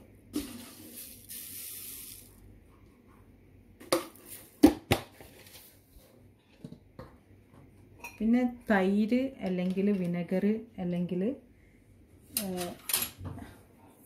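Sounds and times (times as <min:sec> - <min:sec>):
salt pouring hiss: 0:00.4 - 0:02.4.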